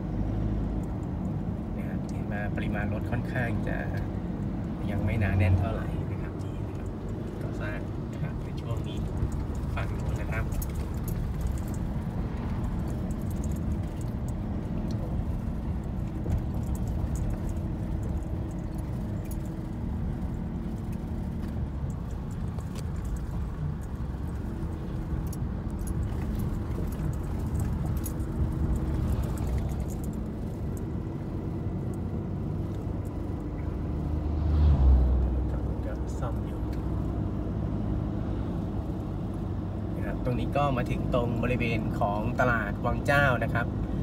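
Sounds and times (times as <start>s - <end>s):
car cabin road rumble: 0.0s - 44.0s
truck passing: 2.3s - 40.0s
light rattles: 6.2s - 33.7s.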